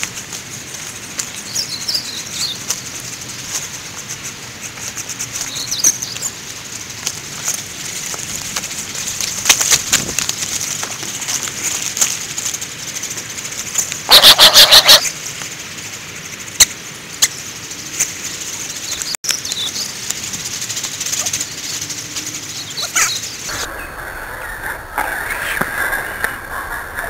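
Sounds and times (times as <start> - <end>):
steady outdoor hiss: 0.0 - 27.0
duck wingbeats: 13.5 - 15.1
low rumble: 23.5 - 27.0.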